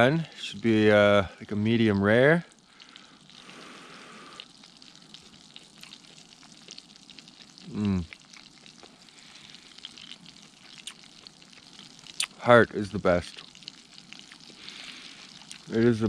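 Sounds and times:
meat frying in a pan: 0:00.0 - 0:16.0
person humming mmm: 0:07.7 - 0:08.1.

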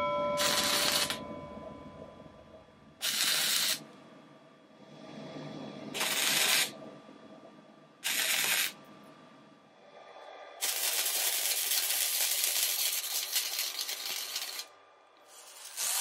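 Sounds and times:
welder arc crackling: 0:00.4 - 0:01.2, 0:03.0 - 0:03.8, 0:06.0 - 0:06.7, 0:08.0 - 0:08.8, 0:10.6 - 0:14.7.

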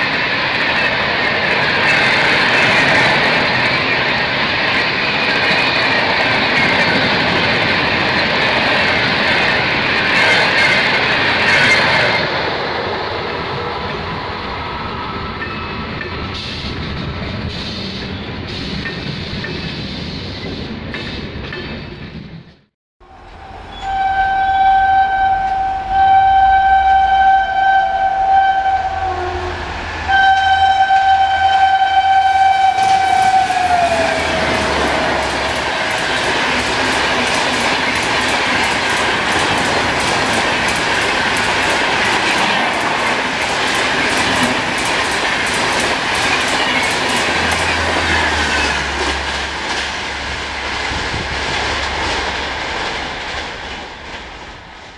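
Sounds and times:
train wheels clacking over rail joints: 0:00.0 - 0:12.5, 0:32.7 - 0:54.9
train horn blasts: 0:23.0 - 0:36.9.

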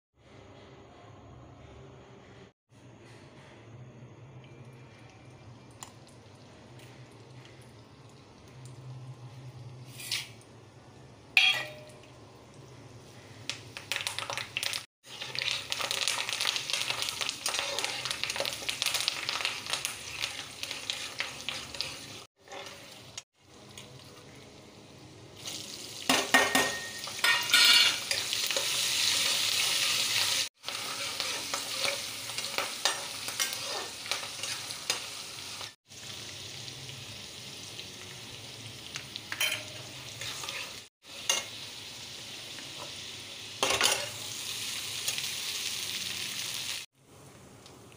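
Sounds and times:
hot oil sizzling and crackling: 0:04.6 - 0:47.9
metal spatula scraping pan: 0:30.7 - 0:35.0, 0:39.3 - 0:41.4.

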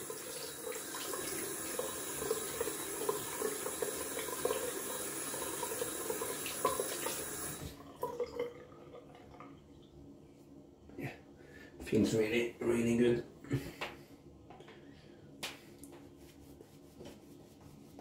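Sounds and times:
sink tap running: 0:00.0 - 0:08.2.

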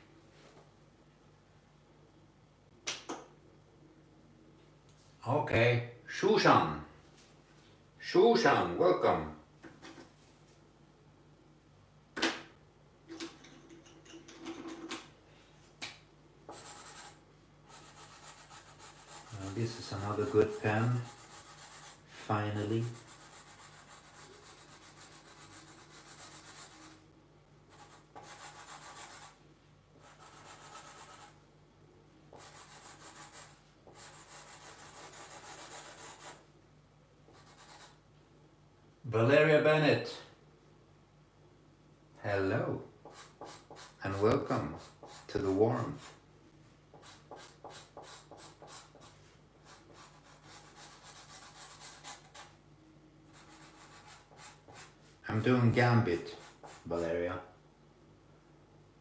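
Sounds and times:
marker rubbing across paper: 0:16.5 - 0:27.0, 0:27.7 - 0:29.4, 0:30.0 - 0:31.4, 0:32.3 - 0:36.4, 0:37.3 - 0:38.0, 0:43.0 - 0:46.2, 0:46.9 - 0:52.6, 0:53.3 - 0:55.1, 0:56.2 - 0:57.1.

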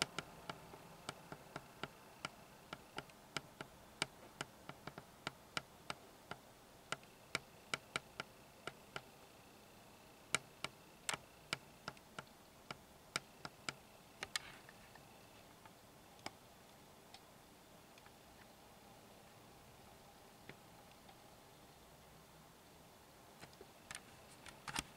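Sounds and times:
sharp clicks: 0:10.3 - 0:16.4
faint steady high tone: 0:13.1 - 0:22.1.

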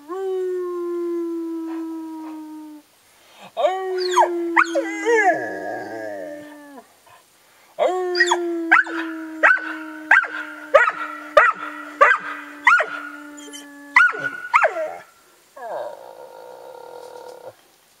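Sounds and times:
dog howling and yelping: 0:03.6 - 0:06.8, 0:07.8 - 0:16.4
man howling low: 0:07.8 - 0:15.0.

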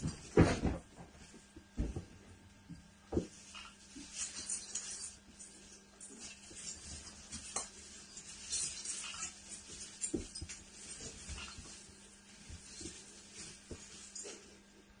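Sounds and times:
tree branches rustling and crackling: 0:03.3 - 0:14.2.

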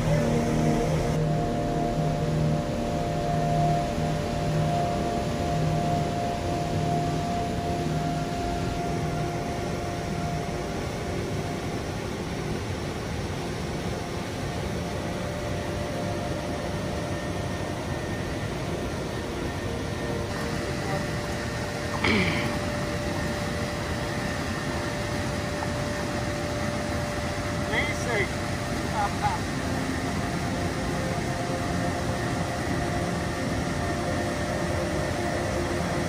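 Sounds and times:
waterfall roaring: 0:21.8 - 0:22.8.

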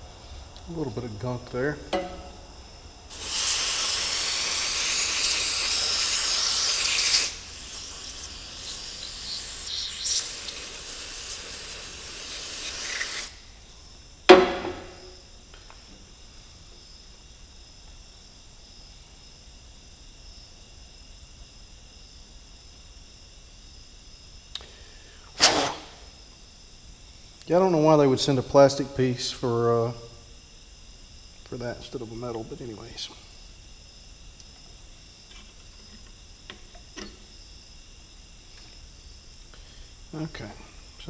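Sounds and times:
sharp knock: 0:01.9 - 0:02.4, 0:14.3 - 0:15.2
aerosol spray hissing: 0:03.1 - 0:13.4.

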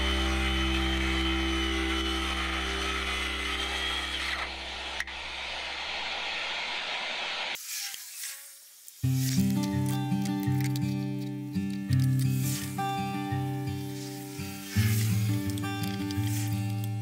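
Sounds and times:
circular saw cutting plywood: 0:00.0 - 0:08.4.

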